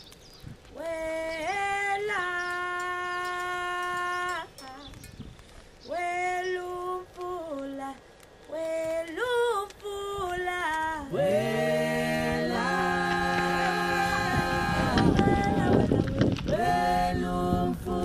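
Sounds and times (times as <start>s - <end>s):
lower voices singing: 0.7s - 5.0s, 5.8s - 18.0s
high voice singing: 5.8s - 18.0s.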